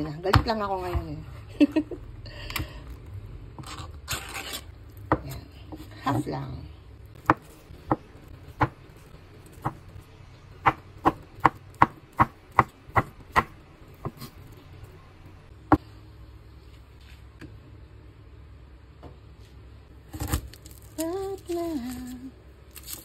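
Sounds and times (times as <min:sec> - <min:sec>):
knife chopping on wooden board: 0:10.6 - 0:14.3.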